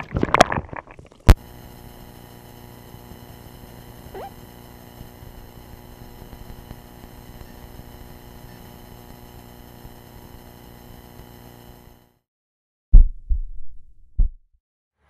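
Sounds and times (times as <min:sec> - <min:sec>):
underwater rumble and hum: 0:00.0 - 0:11.7.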